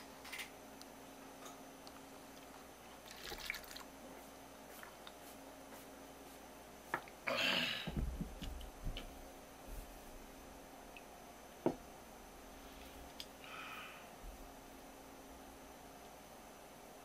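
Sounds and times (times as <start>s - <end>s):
liquid pouring into cup: 3.0s - 3.9s.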